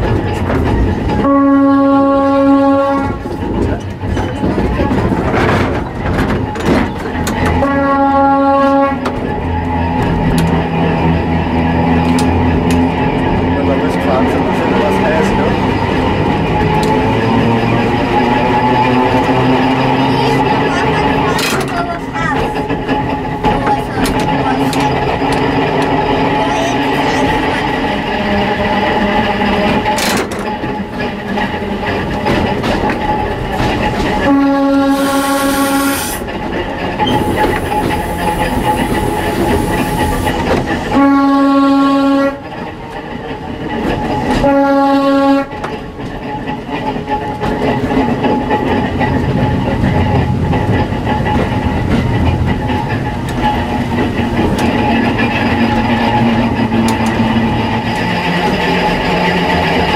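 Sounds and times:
railcar wheels and motor rumbling: 0.0 - 59.9
train horn blasts: 1.2 - 3.3, 7.5 - 9.2, 34.2 - 36.2, 40.9 - 42.4, 44.3 - 45.6.

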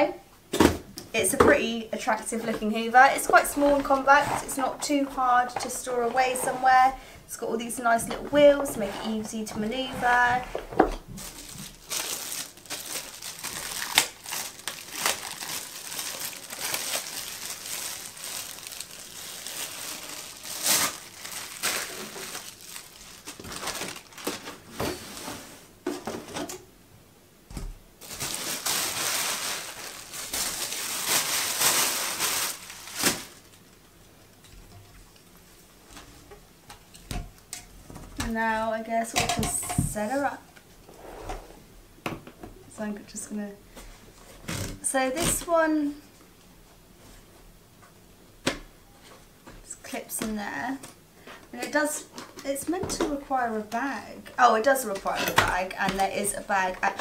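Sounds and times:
plastic packaging crinkling: 10.9 - 24.7, 28.0 - 33.8.

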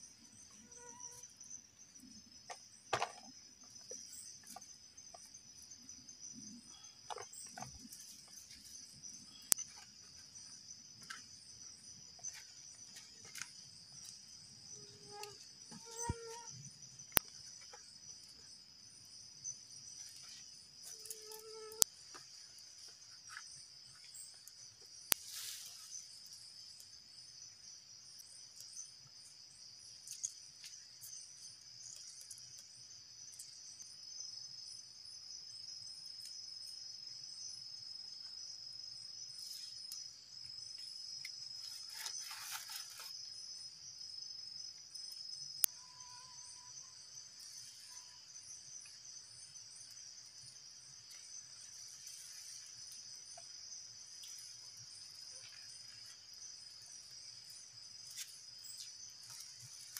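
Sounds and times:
insects chirping: 0.0 - 59.9
rustle of movement: 41.6 - 43.2.

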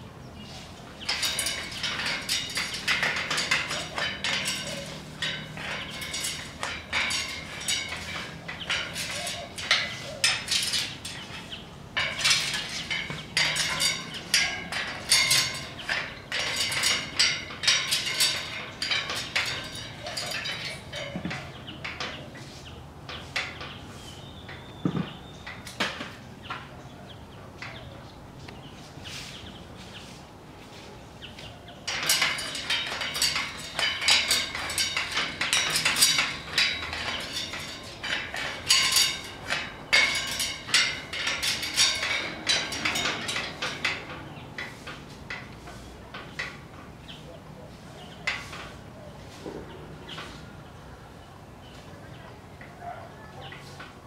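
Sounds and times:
parrot clicking on metal cage bars: 1.1 - 22.2, 31.9 - 46.6.

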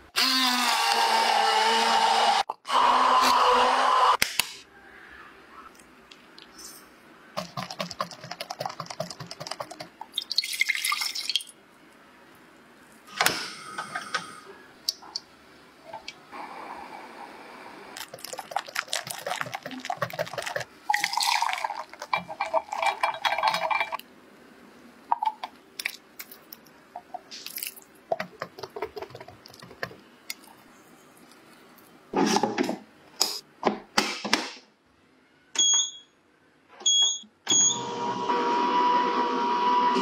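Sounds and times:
control panel beeps: 36.9 - 37.8.

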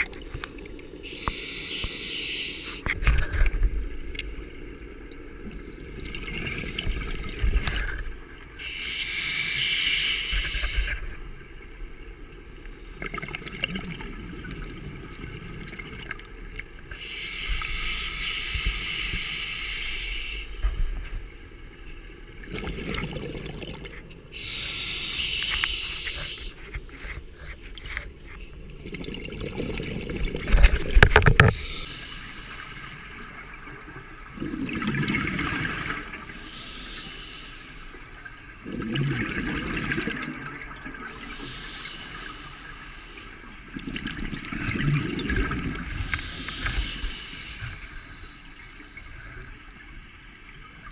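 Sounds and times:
hissing regulator inhale: 1.0 - 3.0, 8.6 - 11.0, 16.9 - 21.0, 24.3 - 27.6, 31.4 - 33.2, 35.0 - 38.4, 41.1 - 44.4, 45.8 - 50.9
gurgling exhaled bubbles: 22.4 - 24.0, 28.6 - 31.8, 34.3 - 36.3, 38.6 - 41.2, 43.8 - 46.9.

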